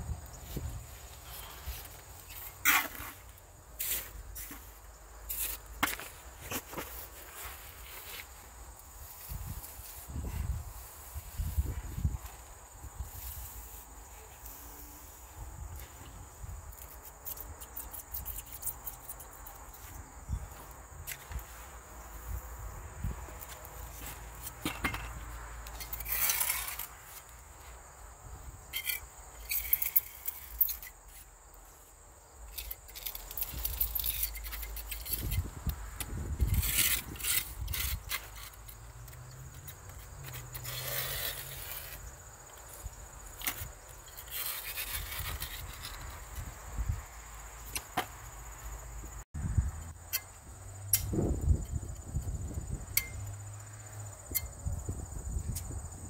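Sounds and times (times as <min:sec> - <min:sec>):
high insect drone: 0:00.0 - 0:56.0
trowel scraping wet mortar: 0:25.8 - 0:27.0.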